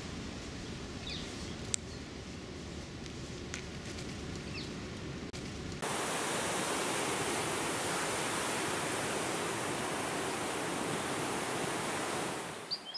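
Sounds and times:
rushing hiss: 5.8s - 12.7s.

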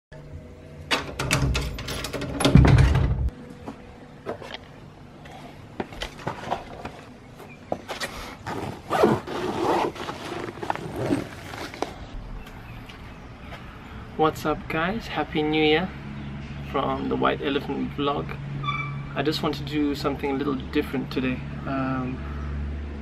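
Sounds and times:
door heavy thunk: 2.4s - 3.3s
backpack rustling and clicking: 7.7s - 12.2s.

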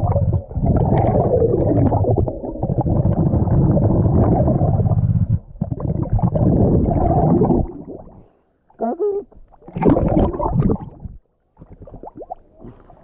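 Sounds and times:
underwater air bubbling: 0.0s - 13.0s.

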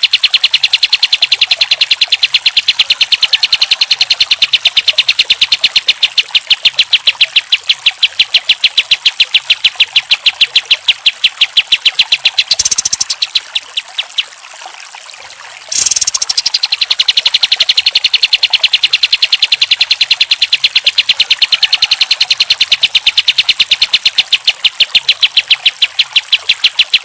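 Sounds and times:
bird singing rattling chip notes: 0.0s - 14.4s, 15.7s - 27.0s.

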